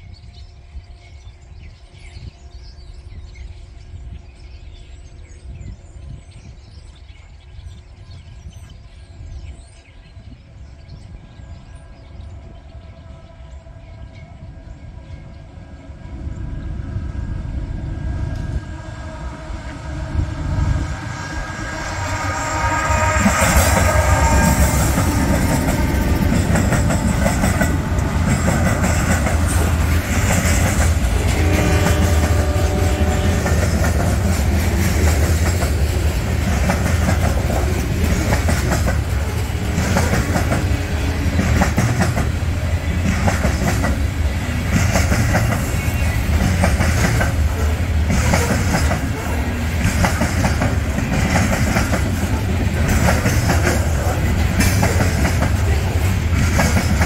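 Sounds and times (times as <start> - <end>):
diesel locomotive rumble: 14.2 - 57.0
wheels clacking over rail joints: 22.8 - 57.0.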